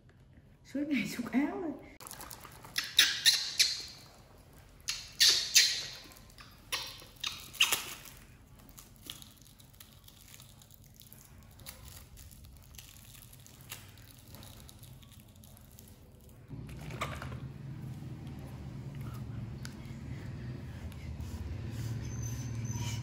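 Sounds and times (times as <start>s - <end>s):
plastic packet crinkling: 2.0s - 2.8s, 6.0s - 16.5s.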